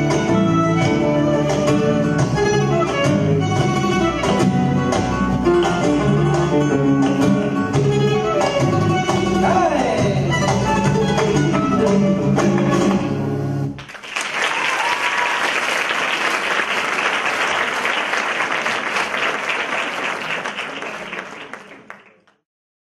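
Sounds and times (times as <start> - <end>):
flamenco dance music: 0.0 - 15.4
audience applause: 13.8 - 22.4.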